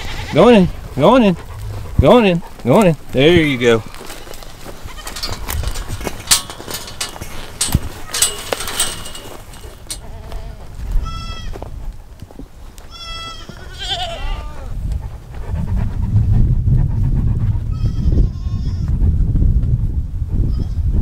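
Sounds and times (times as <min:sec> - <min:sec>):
goats bleating: 0:00.0 - 0:00.7, 0:03.2 - 0:05.4, 0:09.8 - 0:11.5, 0:12.9 - 0:14.7
knocks and rustling: 0:03.9 - 0:10.1.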